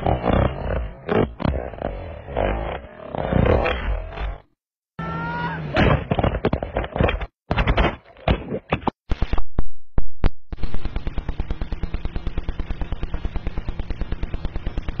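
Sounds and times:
rapid automatic gunfire: 10.6s - 15.0s.

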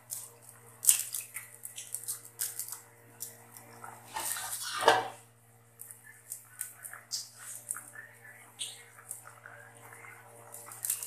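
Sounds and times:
pot rasping scrape: 4.0s - 5.2s.

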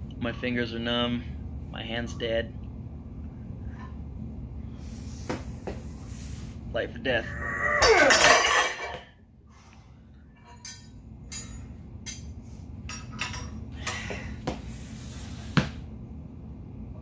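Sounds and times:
metal handle clinking on weight plates: 10.4s - 12.3s, 12.9s - 14.0s.

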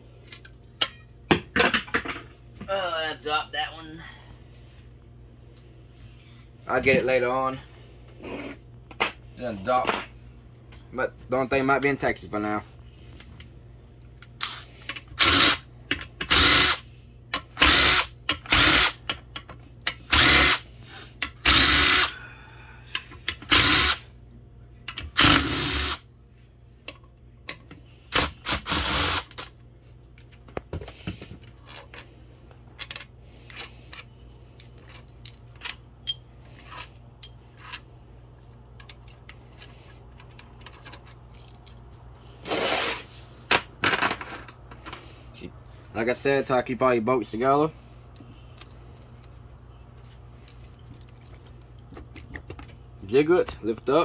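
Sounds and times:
cordless power tool spinning: 15.2s - 15.6s, 16.3s - 16.8s, 17.6s - 19.0s, 20.1s - 20.7s, 21.4s - 22.1s, 23.4s - 24.0s, 25.2s - 26.0s, 28.2s - 29.4s.

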